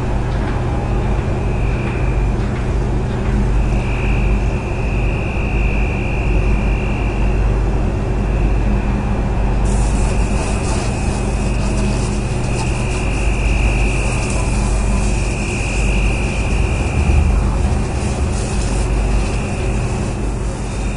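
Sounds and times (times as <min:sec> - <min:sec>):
high whine: 0:00.0 - 0:20.9
ship engines rumbling: 0:00.0 - 0:20.9
hiss: 0:09.6 - 0:20.9.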